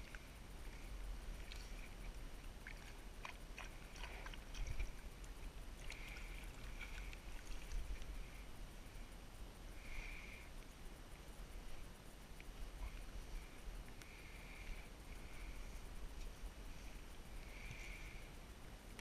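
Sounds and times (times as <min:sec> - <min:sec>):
water sloshing and dripping: 0:01.4 - 0:08.3.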